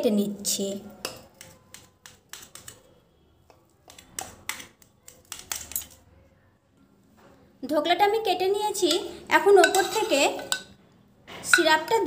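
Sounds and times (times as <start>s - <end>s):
knife tapping metal plate: 8.9s - 10.7s.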